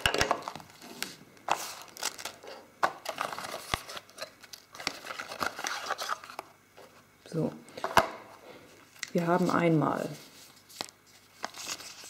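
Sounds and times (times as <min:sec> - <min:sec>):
cardboard and paper rustling: 0:00.1 - 0:07.0, 0:09.2 - 0:12.0.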